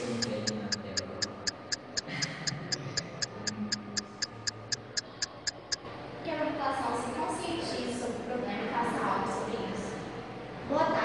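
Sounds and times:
fast even ticking: 0.0s - 5.8s.

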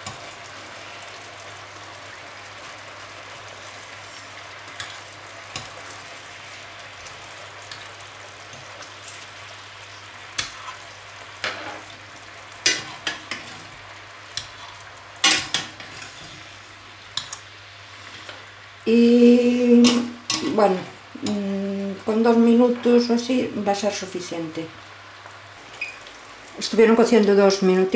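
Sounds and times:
fish sizzling in a frying pan: 0.0s - 27.9s.

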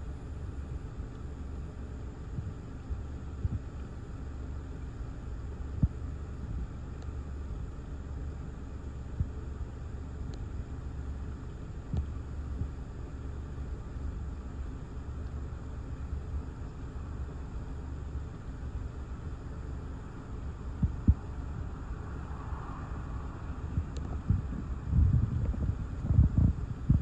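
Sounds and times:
gusty wind buffeting microphone: 20.8s - 27.0s.

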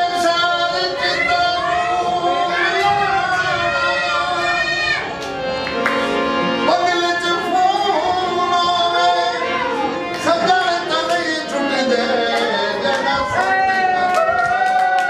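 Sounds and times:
person singing long wavering notes: 0.0s - 5.1s
instrumental accompaniment: 0.0s - 15.0s.

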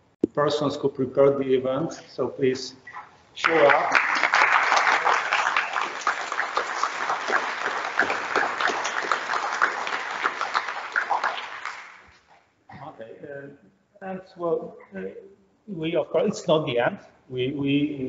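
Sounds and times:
audience applauding: 3.4s - 12.2s.

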